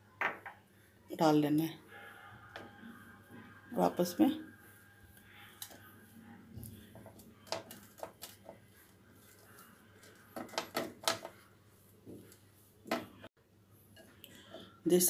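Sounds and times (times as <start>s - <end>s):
hands rubbing flour in bowl: 6.8s - 10.4s.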